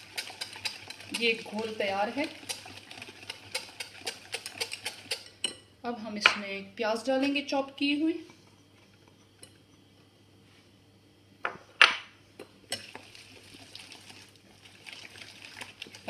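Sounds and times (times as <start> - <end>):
whisk stirring and scraping batter: 0.0 - 5.3, 12.7 - 16.0
whisk clinking against glass bowl: 0.0 - 5.6.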